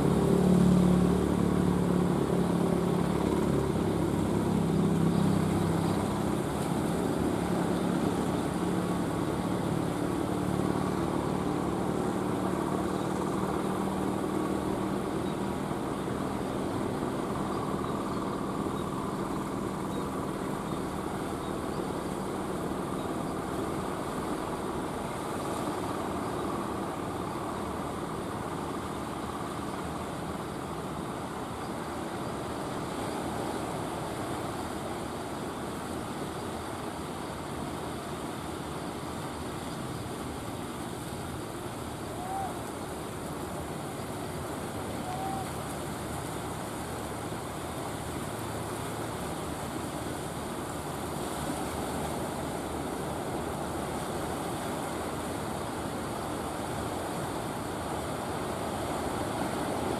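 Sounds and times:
boat engine running: 0.0 - 59.9
surf: 0.0 - 59.9
wind: 0.0 - 59.9.

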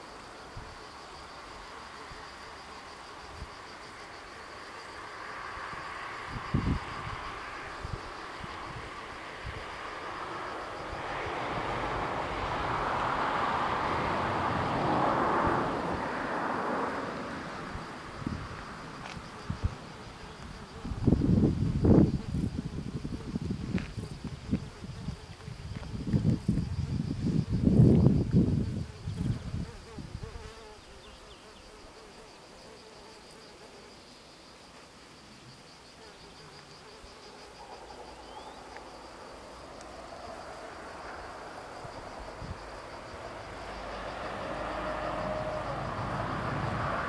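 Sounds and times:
high chirring of insects: 0.0 - 47.0
distant vehicle rushing: 5.0 - 20.2, 37.5 - 47.0
flying insect buzzing: 16.5 - 45.8.

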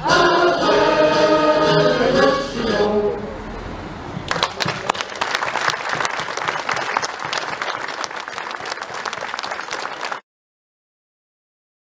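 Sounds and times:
people applauding: 4.2 - 10.2.

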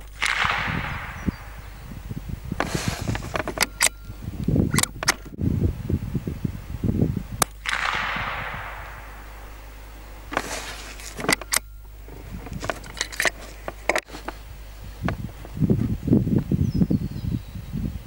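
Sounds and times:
rifle shot: 0.0 - 1.9, 7.4 - 11.7
rifle bolt clicking: 3.1 - 4.0, 4.7 - 5.3, 10.3 - 11.7, 12.6 - 14.1.

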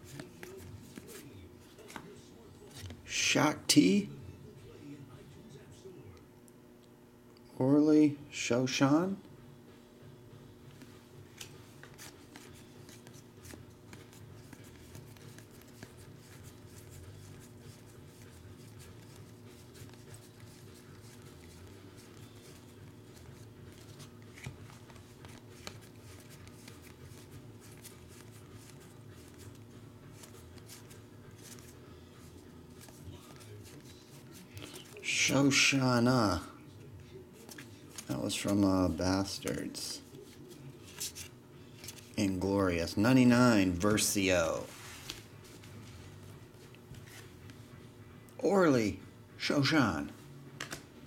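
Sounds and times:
cards flipping and ticking: 0.0 - 3.0, 10.6 - 36.4, 37.3 - 42.4, 44.9 - 47.6, 50.6 - 50.9
steady low hum: 0.0 - 51.0.

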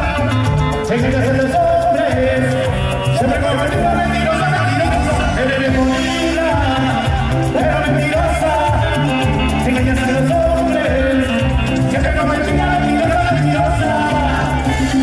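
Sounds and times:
latin dance music: 0.0 - 15.0.

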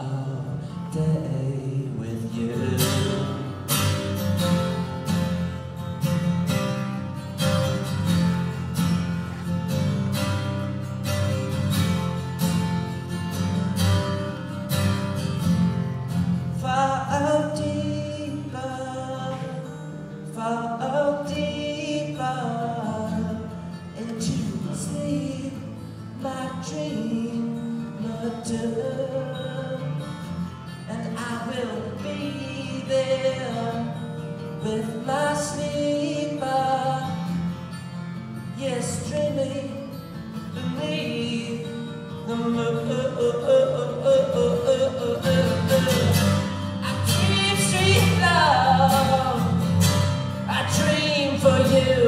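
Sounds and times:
man singing: 0.0 - 5.6, 16.1 - 37.6, 38.4 - 52.0
acoustic guitar strummed: 0.0 - 52.0.

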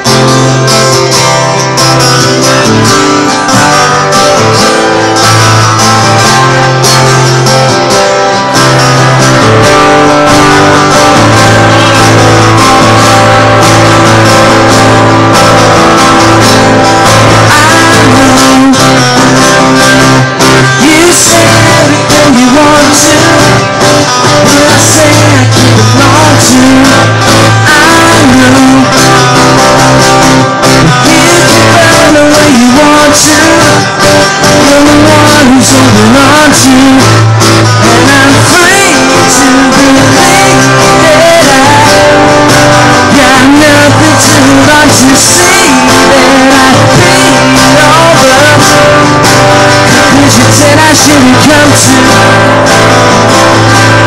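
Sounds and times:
acoustic guitar strummed: 0.0 - 54.0
man singing: 0.0 - 54.0.

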